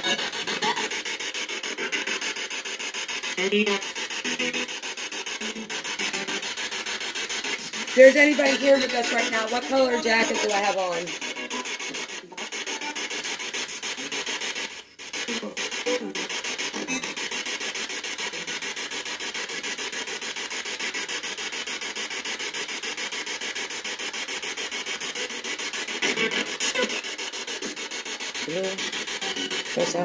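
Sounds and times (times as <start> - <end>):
pulsing radio static: 0.0 - 19.6, 24.8 - 30.0
voice fragments: 3.3 - 4.0, 5.3 - 6.6, 7.6 - 12.5, 28.4 - 30.0.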